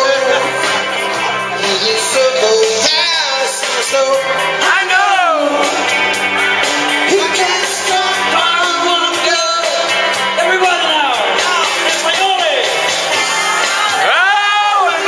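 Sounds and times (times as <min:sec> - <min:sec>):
man singing into a microphone: 0:00.0 - 0:00.6, 0:01.5 - 0:05.8, 0:07.0 - 0:12.1, 0:14.0 - 0:15.0
acoustic and electric guitars: 0:00.0 - 0:15.0.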